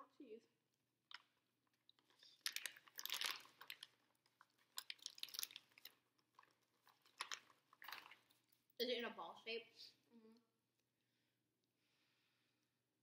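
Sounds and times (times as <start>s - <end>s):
paper bag crinkling: 2.2s - 3.9s.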